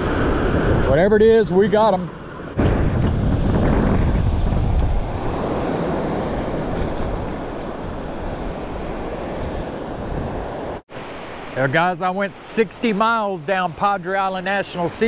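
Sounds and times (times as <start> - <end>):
wind buffeting microphone: 0.0 - 10.8
surf washing on beach: 0.0 - 15.0.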